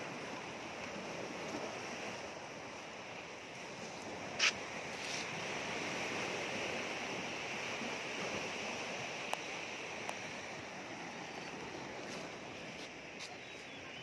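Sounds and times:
sea surf: 0.0s - 14.0s.

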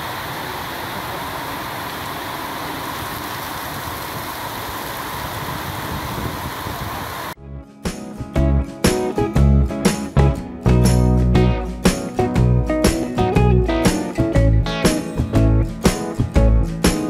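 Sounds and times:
heavy rain on pavement: 0.0s - 7.4s
guitar music: 7.4s - 17.0s.

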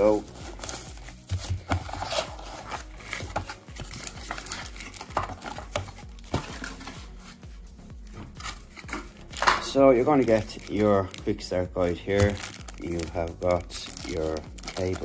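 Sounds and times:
bubble wrap crinkling: 0.0s - 7.6s, 8.3s - 15.0s
cardboard knocks and scrapes: 0.6s - 7.4s.

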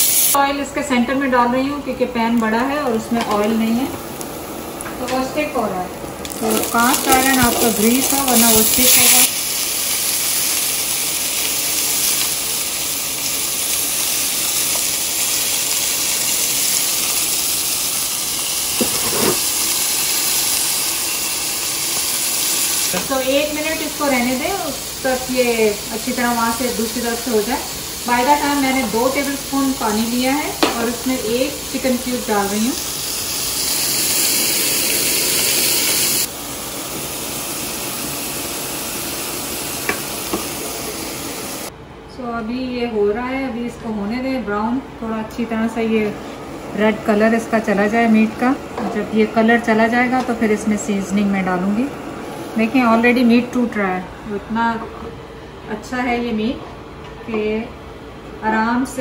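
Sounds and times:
beef sizzling in a pan: 0.0s - 0.4s, 6.2s - 41.7s.

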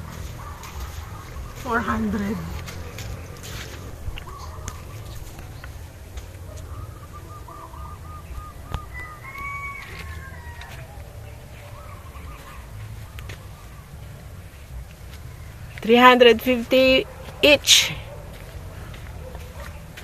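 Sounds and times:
steady low rumble: 0.0s - 9.2s
bird calling: 0.0s - 16.0s.

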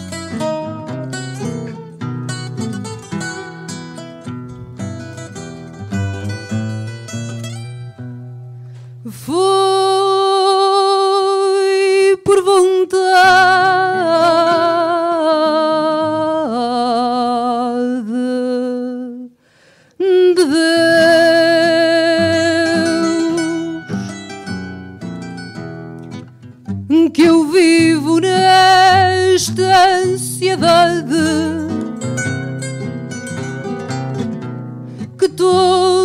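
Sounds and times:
plucked guitars: 0.0s - 10.4s, 20.8s - 36.0s
woman singing with vibrato: 9.0s - 19.4s, 20.0s - 24.2s, 26.9s - 32.1s, 35.0s - 36.0s.

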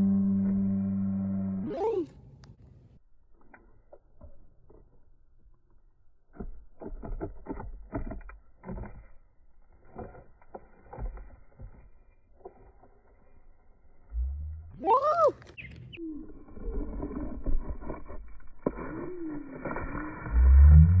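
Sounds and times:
toy hooves tapping on dirt: 3.3s - 12.9s.

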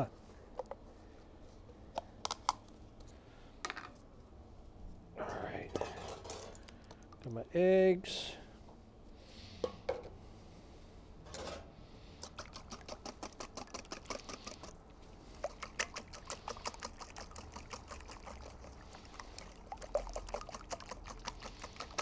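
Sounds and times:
whisk clicking against metal bowl: 12.2s - 14.7s, 15.4s - 22.0s
egg sloshing: 12.2s - 22.0s.

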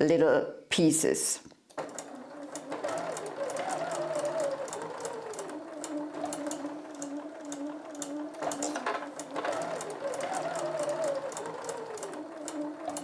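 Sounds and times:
sewing machine motor hum: 1.7s - 13.0s
sewing needle ticks: 4.5s - 13.0s.

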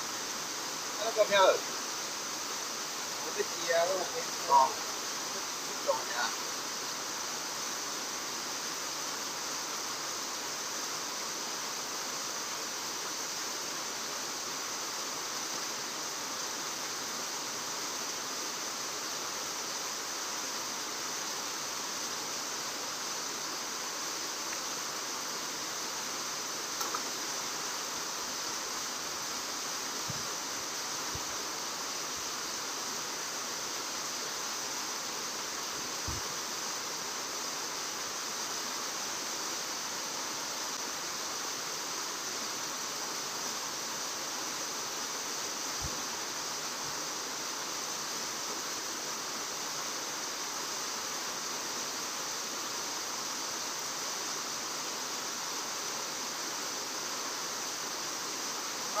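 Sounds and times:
outdoor background hiss: 0.0s - 59.0s
faint click: 26.8s - 27.1s.

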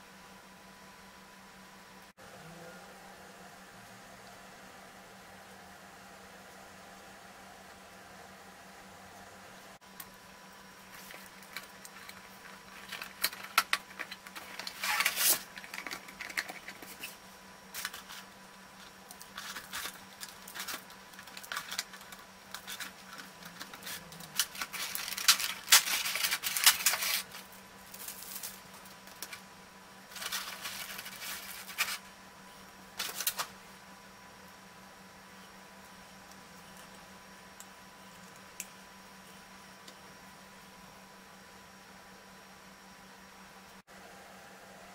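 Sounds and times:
faint steady hum: 0.0s - 44.9s
plastic packaging crinkling: 10.9s - 17.2s, 17.8s - 29.4s, 30.1s - 32.0s.

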